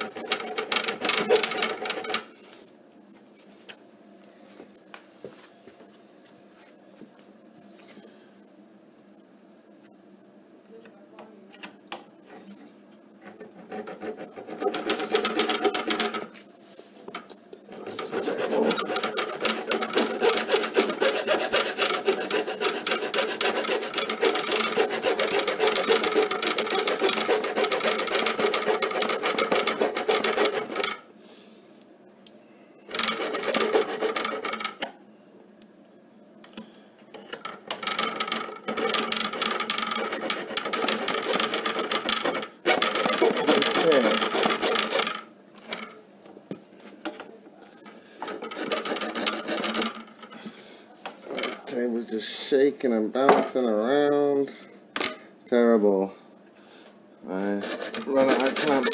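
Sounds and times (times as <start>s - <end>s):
hacksaw cutting through metal: 0.0s - 2.2s, 13.3s - 16.3s, 17.7s - 31.0s, 32.9s - 34.7s, 37.7s - 45.2s, 48.2s - 50.0s, 57.5s - 58.9s.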